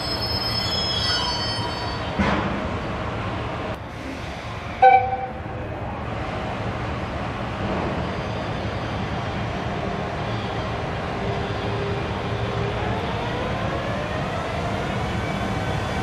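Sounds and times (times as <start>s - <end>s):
low rumble of rolling train: 0.0s - 16.0s
locomotive horn toot: 4.8s - 5.5s.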